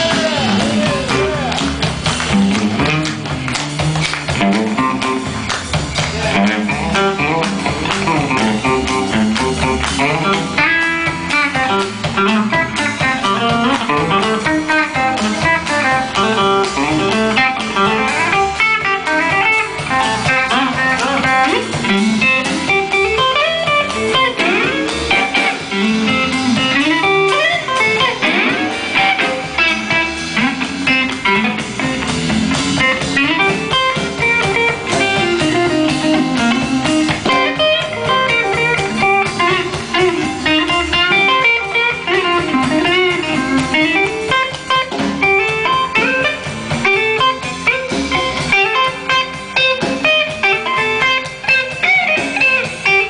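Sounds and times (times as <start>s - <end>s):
bass: 0.0s - 53.0s
drums: 0.0s - 53.0s
electric guitar lead lines: 0.0s - 53.0s.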